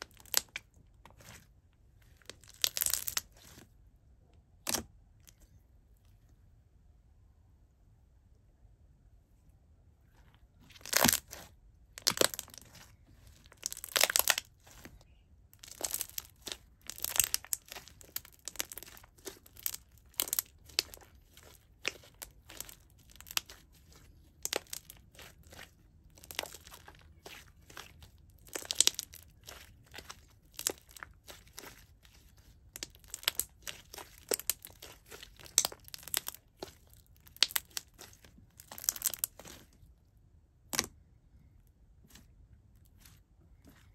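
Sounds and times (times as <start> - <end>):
slime squelching and popping: 0.0 - 1.5, 2.2 - 3.6, 10.7 - 39.8, 40.6 - 41.1.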